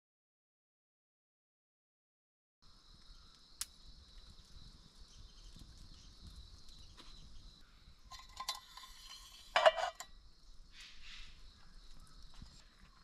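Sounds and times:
metal mug clinking and clanking: 0:08.1 - 0:10.1.

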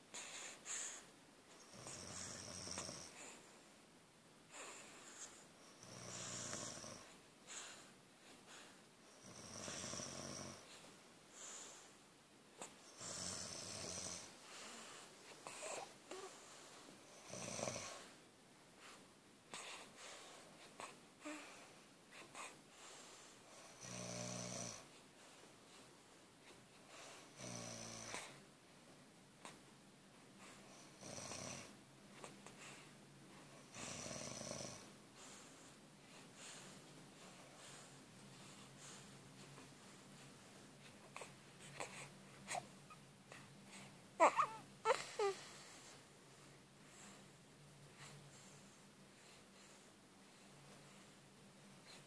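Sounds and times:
soft breathing: 0:00.0 - 0:03.8, 0:04.5 - 0:23.9, 0:24.6 - 0:27.4, 0:29.4 - 0:52.0
person snoring: 0:13.0 - 0:14.3.

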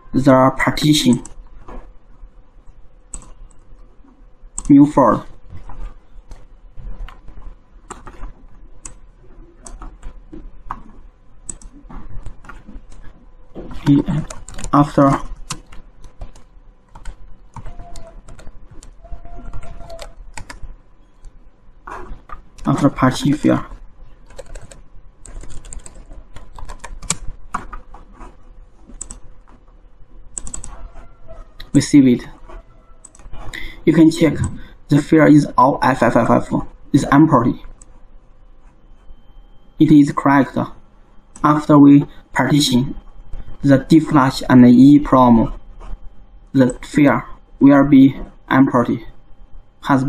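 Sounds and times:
computer keyboard and mouse clicks: 0:03.1 - 0:03.7, 0:05.5 - 0:09.0, 0:09.6 - 0:13.1, 0:13.7 - 0:23.4, 0:24.2 - 0:29.6, 0:30.3 - 0:31.0, 0:32.5 - 0:33.4.

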